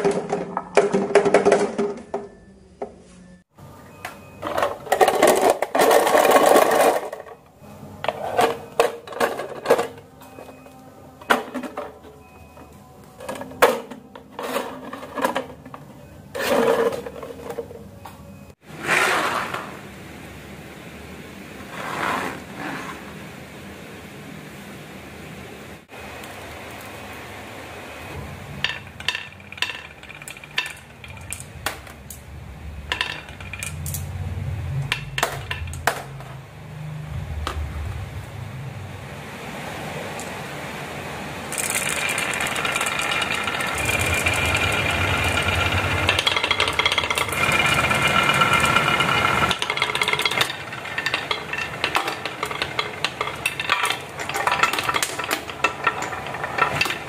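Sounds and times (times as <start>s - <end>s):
marbles rolling down wooden run: 28.7s - 31.8s, 32.9s - 34.0s, 41.5s - 57.0s.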